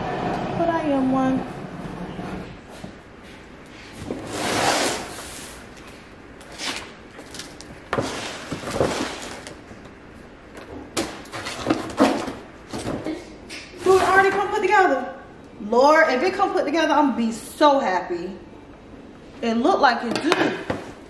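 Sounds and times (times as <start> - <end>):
cardboard scraping and rustling: 6.5 - 9.6.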